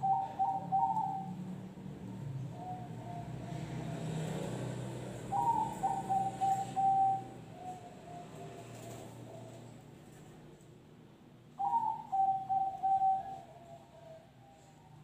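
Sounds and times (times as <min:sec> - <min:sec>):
dove cooing: 0:00.0 - 0:01.5, 0:02.5 - 0:04.4, 0:05.2 - 0:09.8, 0:11.6 - 0:15.0.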